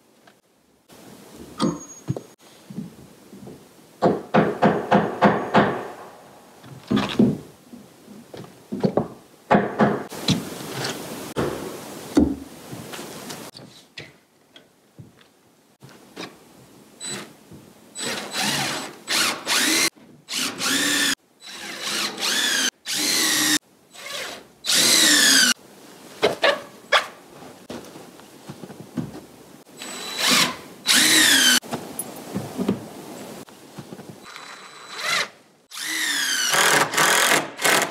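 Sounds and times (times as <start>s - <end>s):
power drill bursts: 18.0s - 25.6s, 29.8s - 31.6s, 34.2s - 37.9s.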